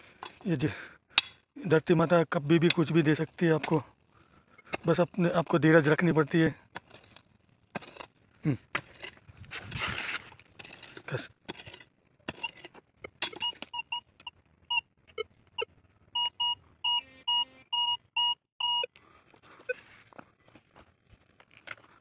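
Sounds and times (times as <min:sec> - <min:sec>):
digging in stony soil: 0:01.8 - 0:13.9
metal detector beeps: 0:13.3 - 0:18.9.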